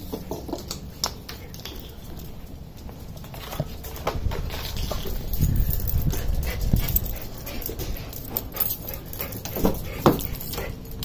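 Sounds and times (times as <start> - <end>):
handheld camera knocks and rumble: 0.0 - 11.0
dog whimpering and panting: 5.0 - 11.0.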